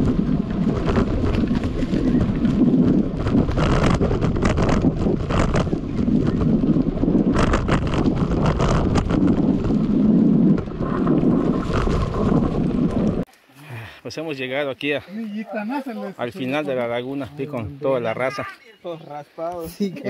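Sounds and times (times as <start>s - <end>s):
bike clattering and rattling: 0.0s - 11.9s
wind buffeting microphone: 0.0s - 13.3s.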